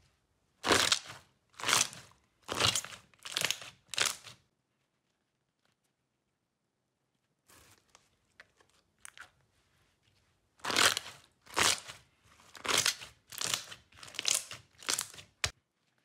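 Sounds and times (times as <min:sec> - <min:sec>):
slime squished by hand: 0:10.6 - 0:15.5.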